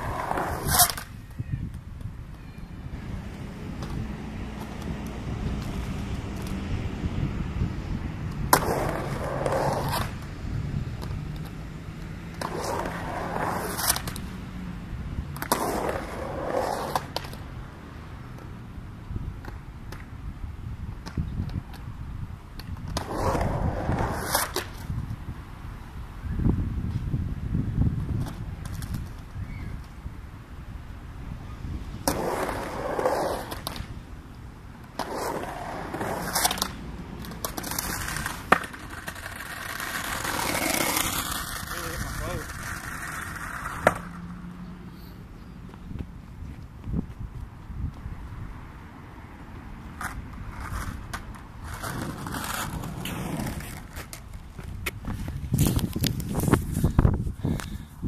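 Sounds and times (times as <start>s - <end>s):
skateboard wheels rolling on concrete: 0.0s - 58.0s
skateboard clacking on ramp: 35.0s - 44.2s.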